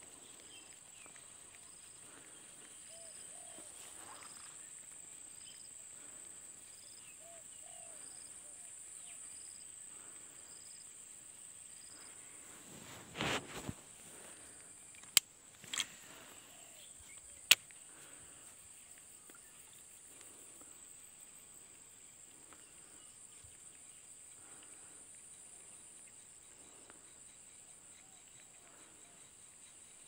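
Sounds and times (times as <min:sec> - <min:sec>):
sharp clicks: 0:14.9 - 0:15.9, 0:17.4 - 0:17.8.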